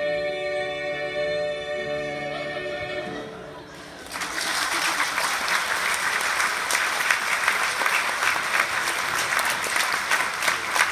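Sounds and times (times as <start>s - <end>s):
music: 0.0s - 4.2s
audience applauding: 3.9s - 10.9s.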